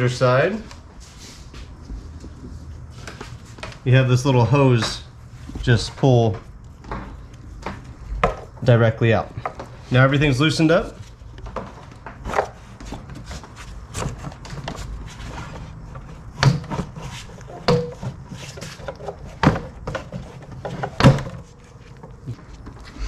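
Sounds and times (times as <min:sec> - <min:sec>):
plastic knocks and rubbing: 0:04.7 - 0:08.7, 0:11.0 - 0:22.9.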